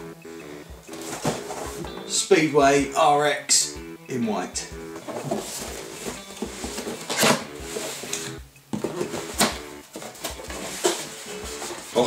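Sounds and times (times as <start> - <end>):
soft background music: 0.0 - 12.0
cardboard box rustling and scraping: 0.9 - 1.9, 5.0 - 8.2, 8.8 - 12.0.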